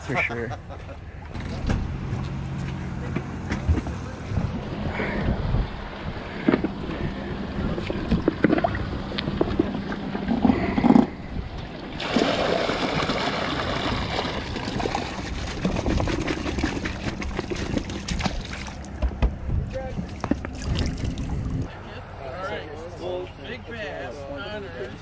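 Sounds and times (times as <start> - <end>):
water splashing: 6.2 - 19.0, 20.0 - 21.7.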